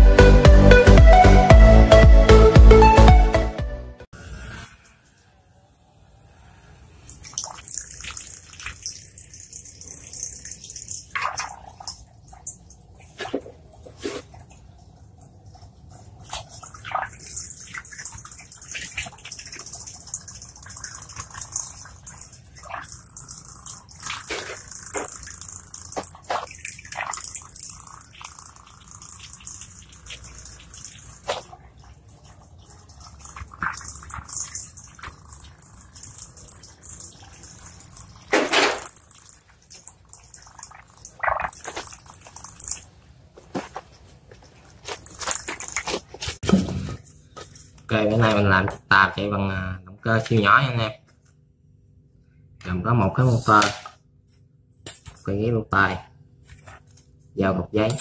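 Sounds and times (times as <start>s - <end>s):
small motor high hiss: 4.1s - 8.0s
water splashing and dripping: 7.0s - 46.5s.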